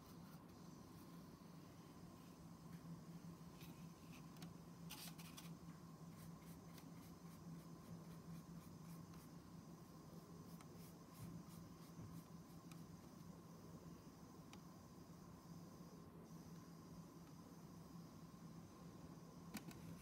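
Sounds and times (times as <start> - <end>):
paintbrush strokes: 4.9 - 12.9.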